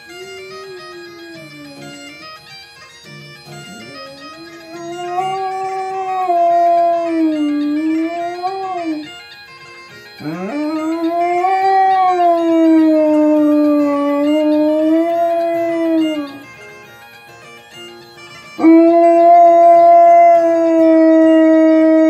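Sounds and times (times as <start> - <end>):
dog howling: 0.0 - 2.3, 3.7 - 9.1, 10.2 - 16.5, 18.6 - 22.0
bagpipe music on television: 0.0 - 22.0.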